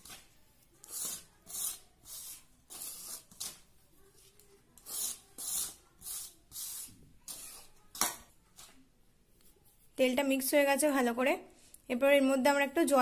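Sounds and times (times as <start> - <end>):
hand scraping flour in metal bowl: 0.8 - 7.6.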